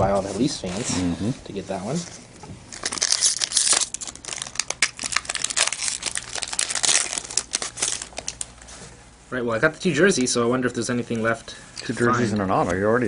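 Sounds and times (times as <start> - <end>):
card pack wrapper tearing and crinkling: 2.7 - 8.5.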